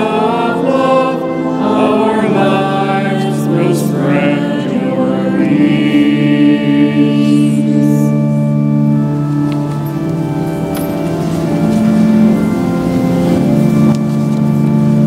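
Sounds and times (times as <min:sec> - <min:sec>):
people singing a hymn: 0:00.0 - 0:08.5
organ chords: 0:00.0 - 0:15.0.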